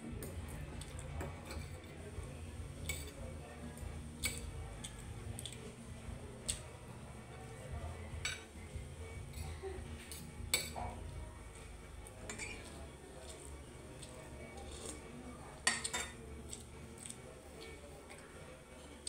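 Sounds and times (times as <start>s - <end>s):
cutlery scraping a ceramic plate: 1.2s - 1.9s, 10.1s - 11.0s, 12.3s - 13.5s, 15.6s - 17.2s.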